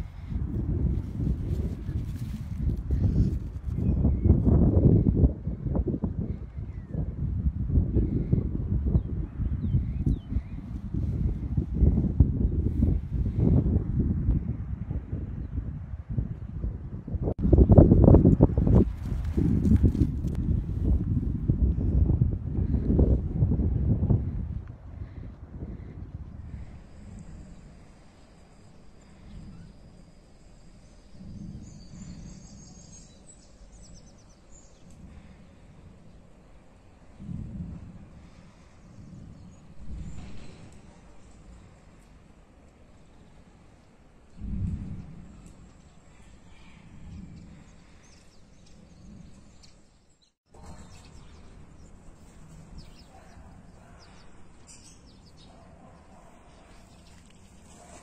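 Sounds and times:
low rumbling noise: 0.0 - 58.0
birds chirping: 26.5 - 37.2, 38.1 - 58.0.

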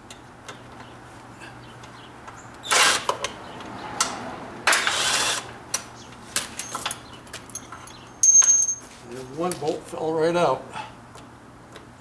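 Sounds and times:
light metallic clinks: 6.6 - 8.8.

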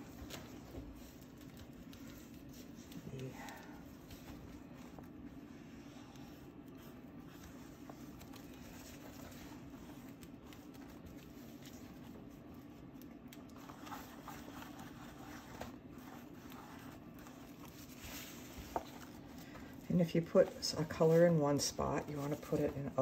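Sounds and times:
steady low hum: 0.0 - 23.0
paintbrush scratching on paper: 13.5 - 19.3.

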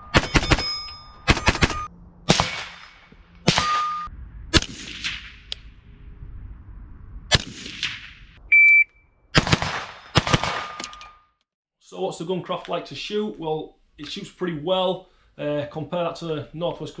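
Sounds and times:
rifle shots: 0.0 - 0.7, 1.3 - 5.5, 9.4 - 11.0
short ring after shots: 0.0 - 4.1, 9.9 - 11.3.

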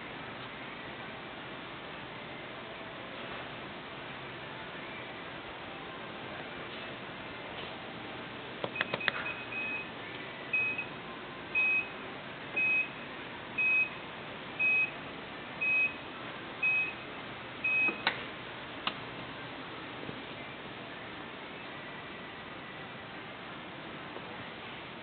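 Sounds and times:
short high warning beeps: 8.8 - 9.9, 10.6 - 10.9, 12.6 - 13.0, 16.6 - 18.1.

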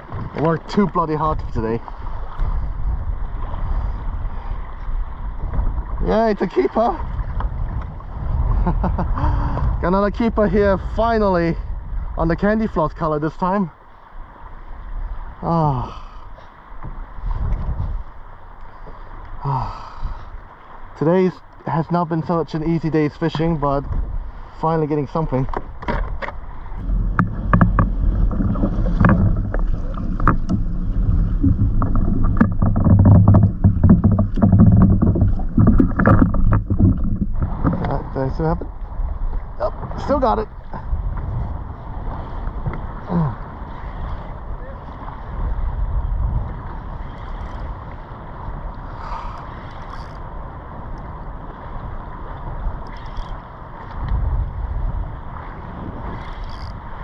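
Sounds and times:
water slapping against hull: 0.0 - 11.3, 16.5 - 19.4, 20.1 - 57.0
wind rumbling on microphone: 0.0 - 57.0
knocks and clicks of gear: 25.5 - 38.0
faint clicks: 52.8 - 54.2.

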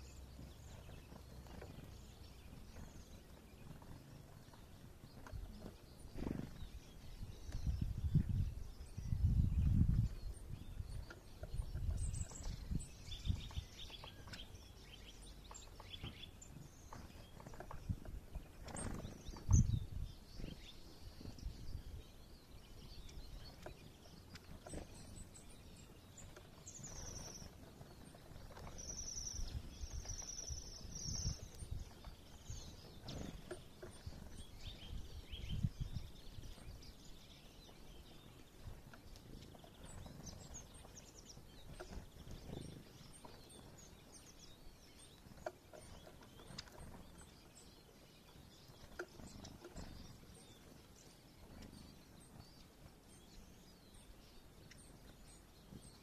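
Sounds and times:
small songbirds calling: 0.0 - 56.0.

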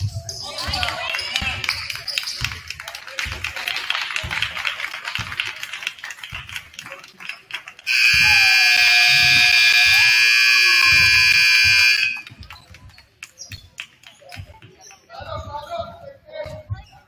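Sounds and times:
scoreboard buzzer horn: 7.9 - 12.3.

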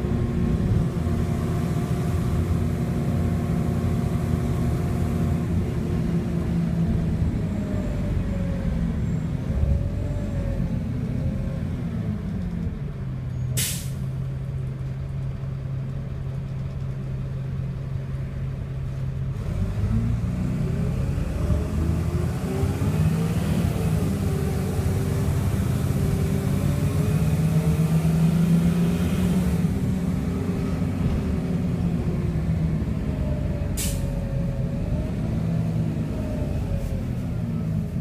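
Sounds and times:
bus diesel engine: 0.0 - 38.0
short hiss of air: 13.6 - 14.1, 33.8 - 34.1.

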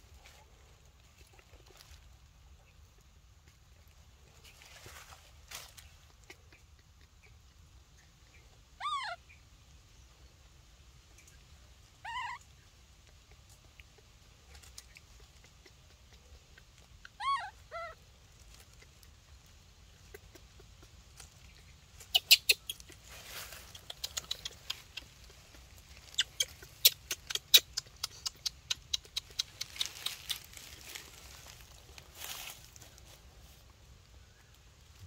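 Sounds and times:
baby monkey calling: 8.0 - 9.4, 12.0 - 19.2, 19.8 - 32.8.

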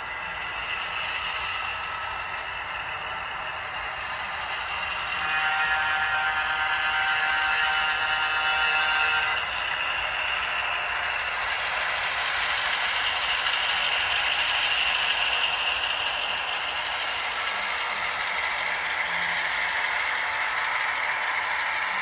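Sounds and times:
model train wheels rattling: 8.6 - 22.0.

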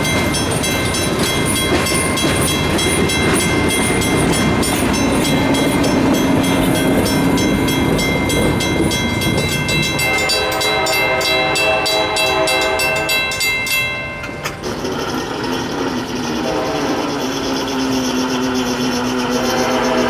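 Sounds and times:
crossing bells clanging: 0.0 - 20.0
train rumble: 0.0 - 20.0
train horn blast: 9.8 - 13.5, 16.3 - 17.6, 19.2 - 20.0.

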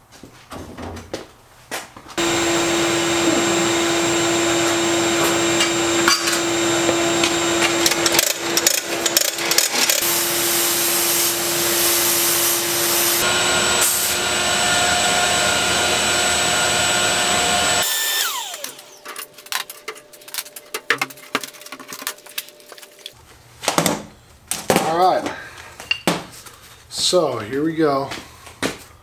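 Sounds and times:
sandblast gun hissing: 2.2 - 18.9
motor spinning down whine: 2.2 - 19.0
vacuum motor running: 2.2 - 19.1.

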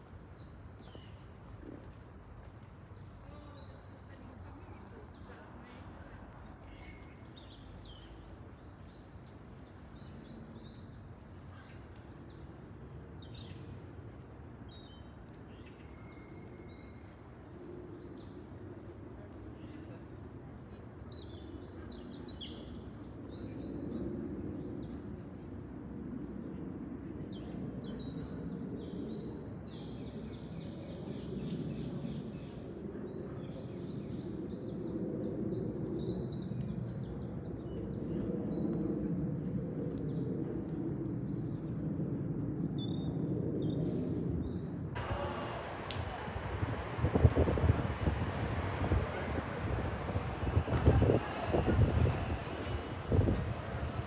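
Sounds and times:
wind noise on microphone: 21.6 - 54.0.

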